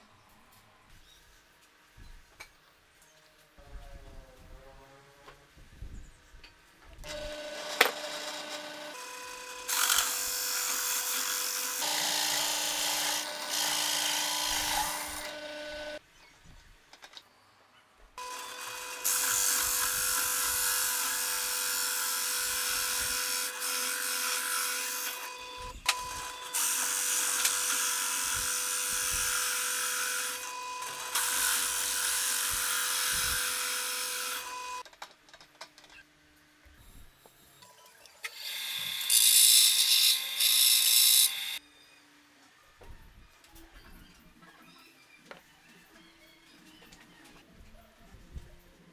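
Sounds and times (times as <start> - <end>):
drill press motor hum: 7.0 - 16.0.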